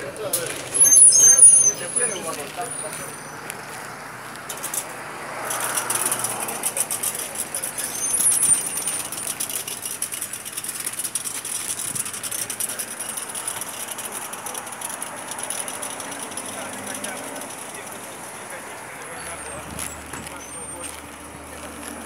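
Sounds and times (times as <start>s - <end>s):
street traffic: 0.0s - 22.0s
high squeal: 0.6s - 3.5s, 7.1s - 9.4s, 19.0s - 21.0s.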